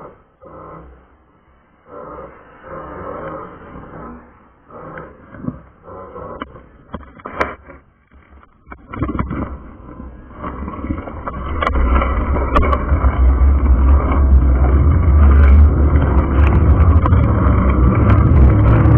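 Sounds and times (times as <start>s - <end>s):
wind buffeting microphone: 10.7s - 18.9s.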